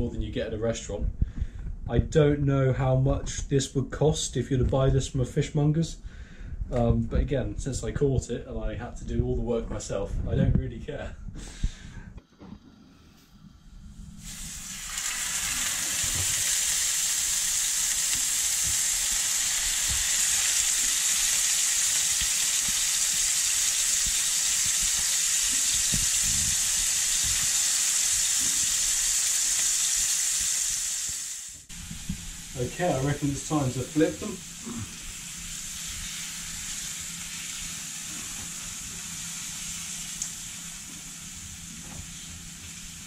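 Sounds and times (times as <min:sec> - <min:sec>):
fish sizzling in a frying pan: 0:14.2 - 0:43.0.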